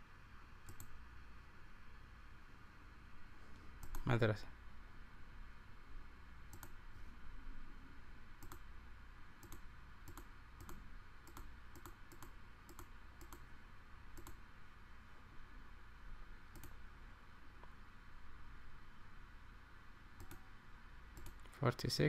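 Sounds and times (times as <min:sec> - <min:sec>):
computer mouse clicking: 0:00.6 - 0:01.0, 0:03.8 - 0:04.1, 0:06.5 - 0:06.8, 0:08.4 - 0:08.7, 0:09.4 - 0:13.5, 0:14.2 - 0:14.4, 0:16.5 - 0:16.8, 0:20.2 - 0:20.4, 0:21.2 - 0:21.5.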